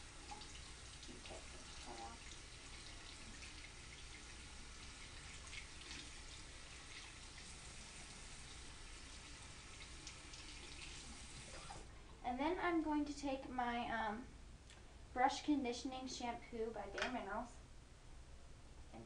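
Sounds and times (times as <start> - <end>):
faucet running into sink: 0.0 - 11.8.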